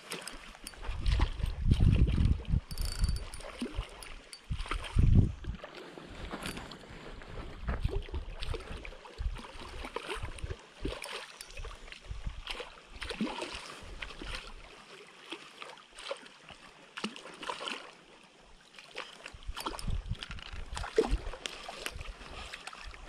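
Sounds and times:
wind bumps on microphone: 0:00.7 - 0:09.4, 0:19.4 - 0:21.3.

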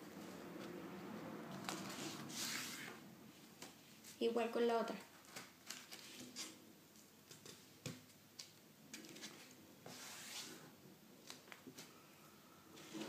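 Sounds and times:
paper being folded and creased: 0:01.6 - 0:03.0, 0:05.1 - 0:06.6
paper rustling: 0:05.1 - 0:06.6.

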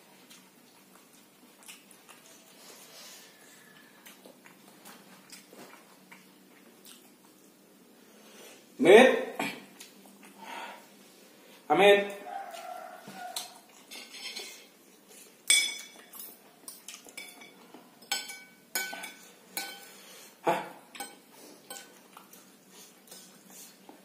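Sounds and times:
cutlery clinking on ceramic plate: 0:13.4 - 0:14.7, 0:15.5 - 0:16.4, 0:17.1 - 0:20.0, 0:21.0 - 0:22.0.

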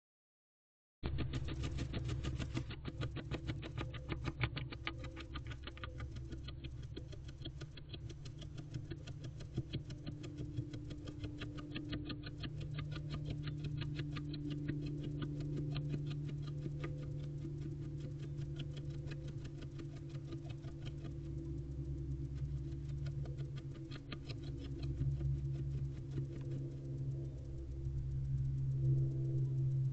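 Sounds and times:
low hum: 0:01.0 - 0:29.9.

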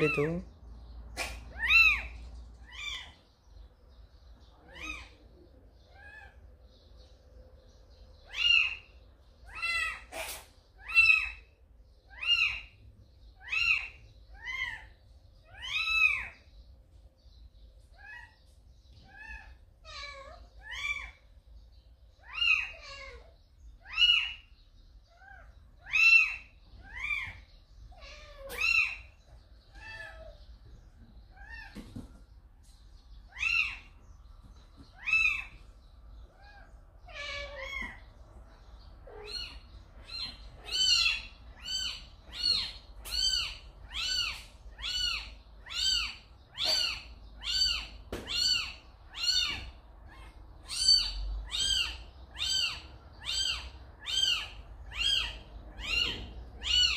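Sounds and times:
kitten meowing: 0:39.0 - 0:56.9.

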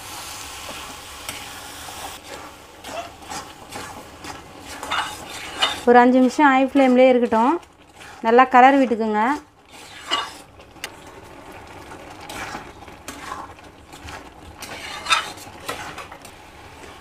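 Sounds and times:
faint sizzle: 0:00.0 - 0:17.0
spatula scraping metal pan: 0:02.2 - 0:10.5, 0:12.2 - 0:16.3.

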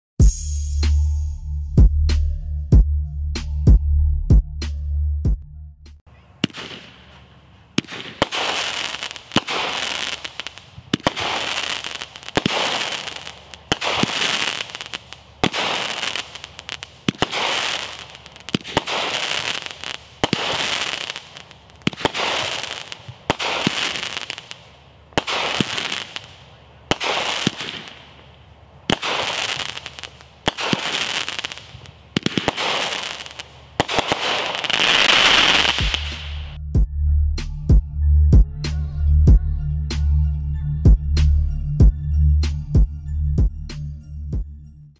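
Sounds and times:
firework shots sharp reports: 0:06.3 - 0:36.6
hissing firework crackle: 0:06.4 - 0:36.6.

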